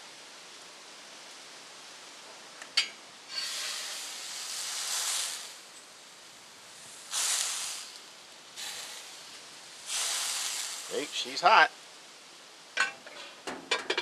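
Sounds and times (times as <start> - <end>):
water hissing in hot pan: 3.2 - 12.2.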